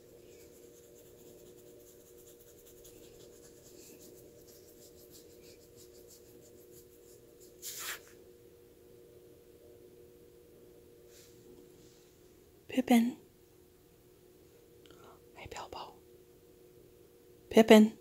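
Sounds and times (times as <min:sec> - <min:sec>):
steady low hum: 0:00.0 - 0:18.0
fingers scratching dog fur: 0:00.2 - 0:08.1.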